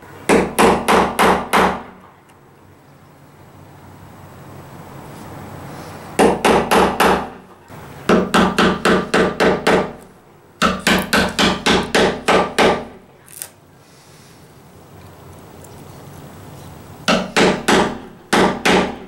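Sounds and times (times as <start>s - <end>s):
hammer striking chisel: 0.3s - 1.9s, 6.2s - 7.4s, 8.1s - 10.0s, 10.6s - 13.0s, 17.1s - 19.0s.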